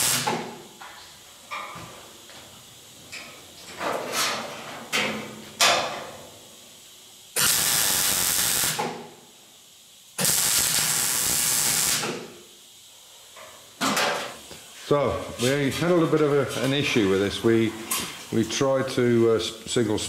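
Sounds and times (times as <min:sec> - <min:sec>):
mig welder welding: 0:00.0 - 0:00.9, 0:07.3 - 0:09.2, 0:10.0 - 0:12.7.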